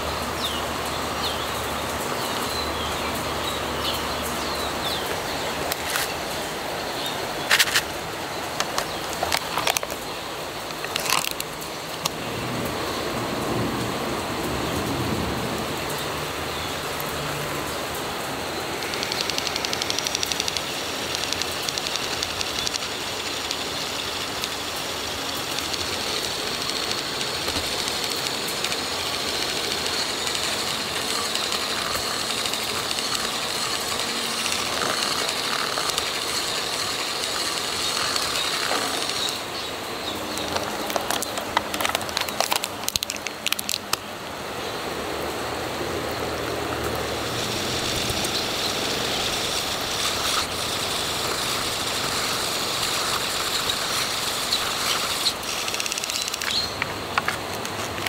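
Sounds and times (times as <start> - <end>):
hand whisk running in batter: 29.2 - 39.4.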